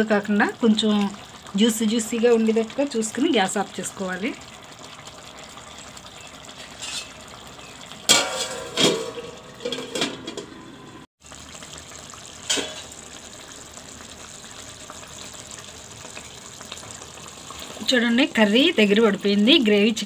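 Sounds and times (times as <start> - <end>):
metal lid clanking on pot: 6.7 - 7.2, 8.0 - 10.7, 12.4 - 12.9
curry simmering hiss: 11.2 - 20.0.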